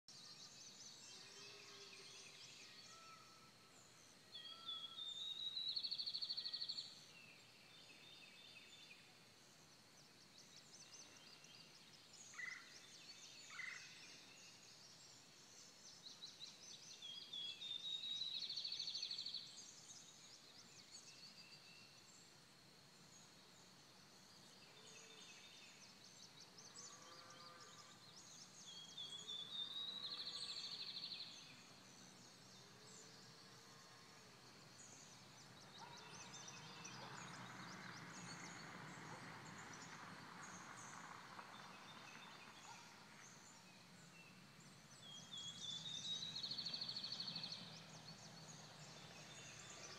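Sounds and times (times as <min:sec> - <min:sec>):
faint birds chirping: 0:00.0 - 0:49.9
songbird singing buzzy trill: 0:00.1 - 0:09.3, 0:41.6 - 0:49.9.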